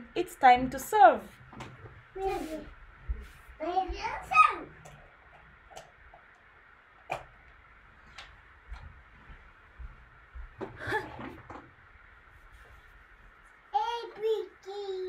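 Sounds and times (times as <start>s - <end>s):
child's voice: 2.2s - 2.7s, 3.6s - 4.8s, 13.7s - 15.0s.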